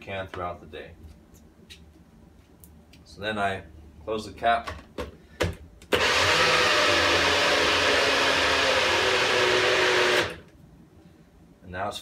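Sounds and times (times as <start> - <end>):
blender motor running: 5.9 - 10.4.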